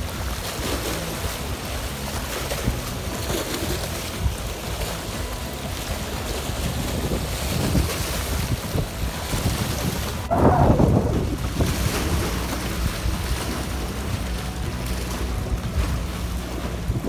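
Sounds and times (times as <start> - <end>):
waves splashing against rocks: 0.0 - 17.0
wind buffeting microphone: 0.0 - 17.0.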